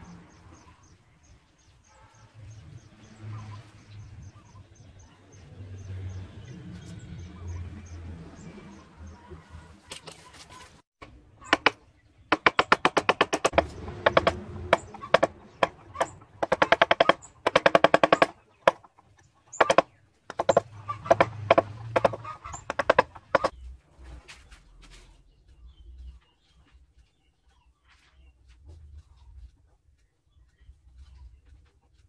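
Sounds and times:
chisel tapping wood: 11.5s - 18.9s, 19.5s - 23.5s.

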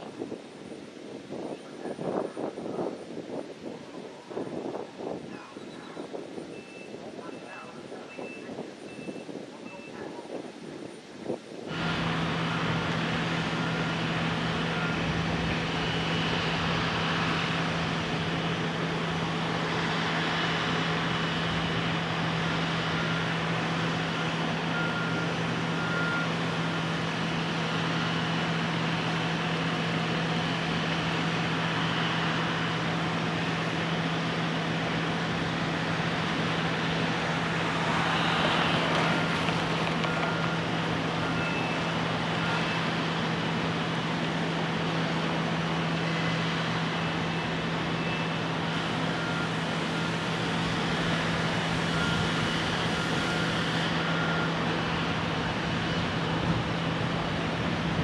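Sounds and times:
faint short beeps: 5.6s - 10.1s
construction machinery hum: 11.7s - 58.0s.

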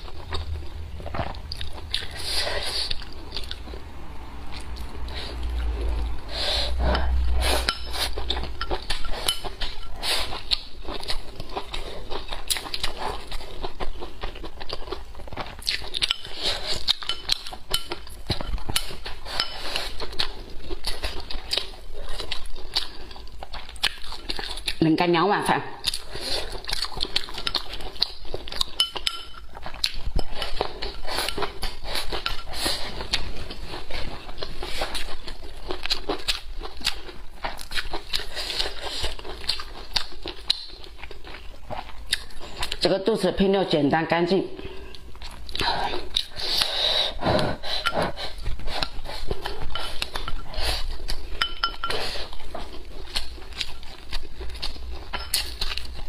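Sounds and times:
chewing: 0.0s - 24.8s, 25.7s - 42.9s, 44.7s - 56.0s
chopsticks scraping ceramic bowl: 6.9s - 11.2s, 16.0s - 20.2s, 27.2s - 34.2s, 47.7s - 53.7s
clinks: 51.4s - 52.0s.

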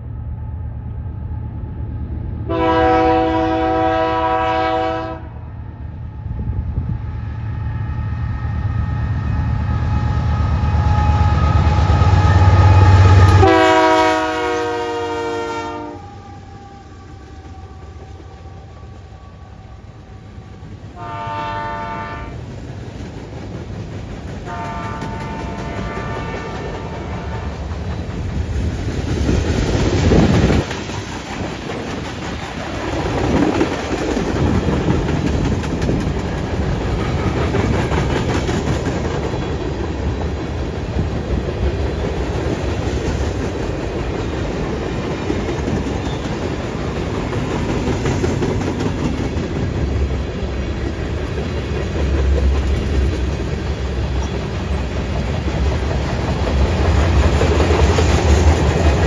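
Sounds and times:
freight train rumbling past: 0.0s - 59.0s
wheels clacking over rail joints: 22.4s - 59.0s.

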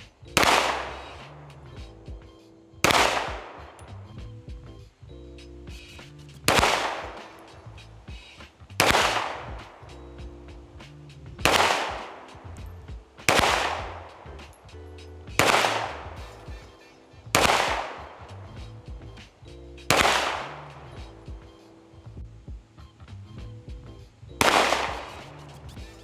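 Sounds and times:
pistol shots: 0.4s - 1.2s, 2.8s - 3.8s, 6.5s - 7.6s, 8.8s - 9.9s, 11.4s - 12.5s, 13.2s - 14.3s, 15.4s - 16.5s, 17.4s - 18.3s, 19.9s - 21.1s, 24.4s - 25.4s.

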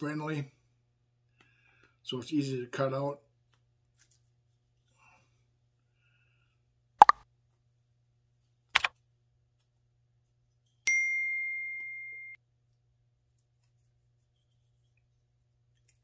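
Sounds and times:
bell ding: 10.9s - 12.4s.

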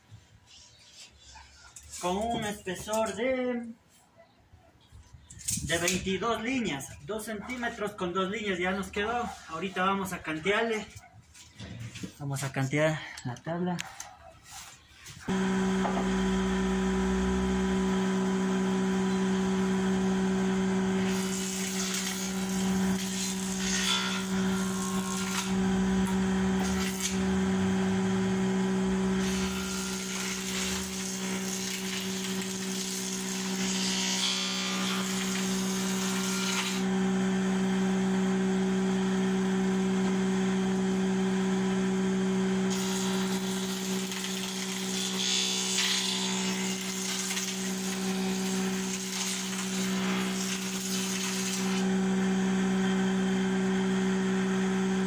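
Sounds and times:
jointer motor hum: 15.3s - 55.0s.

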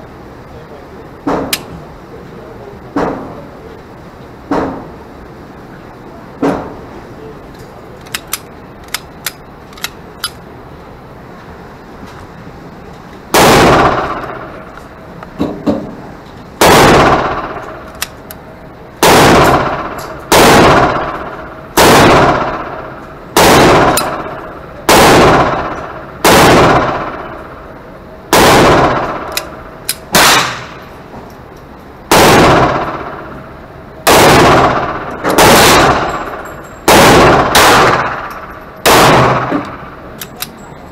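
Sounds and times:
pistol handling clicks: 8.0s - 10.4s, 17.9s - 18.4s, 29.3s - 30.7s, 39.6s - 40.6s
pistol shots echoing indoors: 13.3s - 14.8s, 16.6s - 18.3s, 19.0s - 31.0s, 32.1s - 40.4s.

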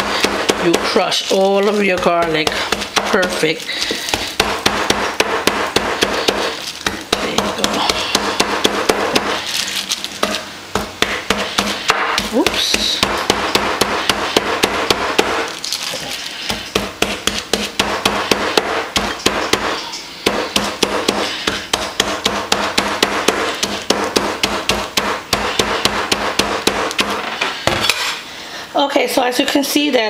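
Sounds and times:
mallet pounding on countertop: 0.0s - 9.4s, 10.2s - 15.5s, 16.4s - 28.0s.

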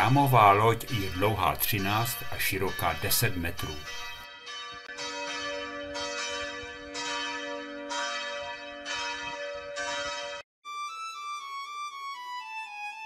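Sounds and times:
church bells ringing: 0.0s - 10.4s.

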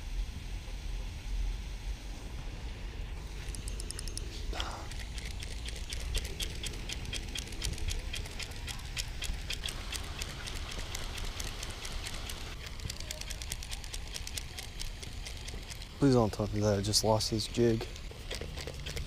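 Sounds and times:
spinning reel ticking: 3.3s - 19.0s.

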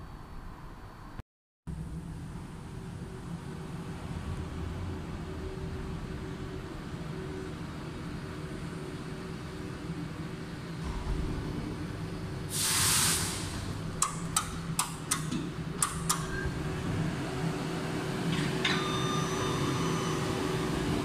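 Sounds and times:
monorail cabin humming: 1.8s - 21.0s
air hiss: 12.5s - 13.7s
sharp mechanical clicks: 14.0s - 16.3s.

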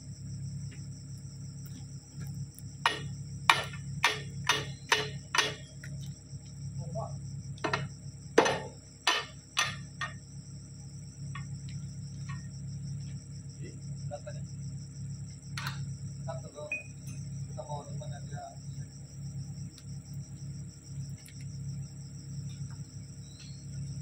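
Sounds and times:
hammer striking steel pins: 2.8s - 5.7s, 7.6s - 10.2s.

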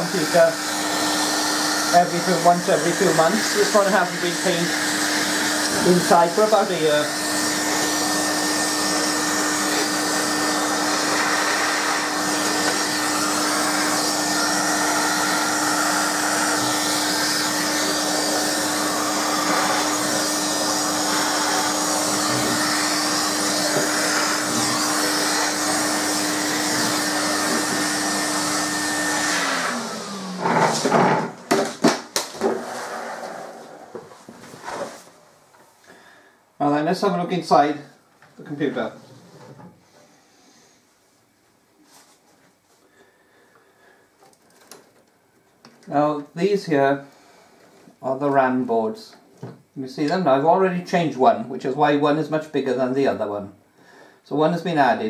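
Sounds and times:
vacuum cleaner running: 0.0s - 35.2s.

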